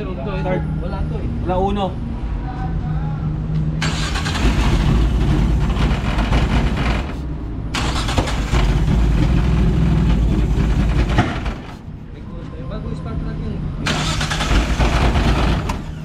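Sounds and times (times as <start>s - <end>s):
engine cranking on starter: 3.8s - 11.8s, 13.8s - 16.0s.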